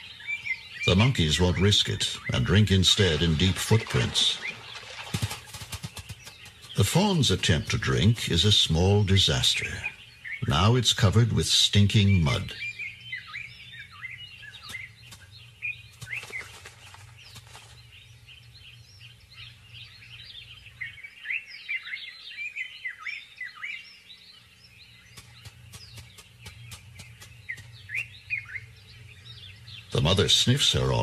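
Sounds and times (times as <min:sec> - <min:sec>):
small birds chirping: 0:00.0 - 0:31.0
low hum: 0:24.5 - 0:31.0.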